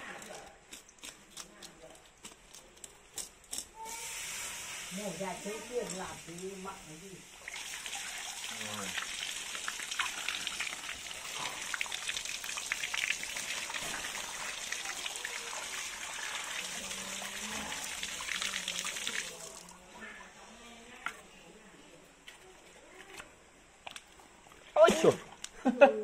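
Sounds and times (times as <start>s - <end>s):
water splashing on fish: 7.4s - 19.8s.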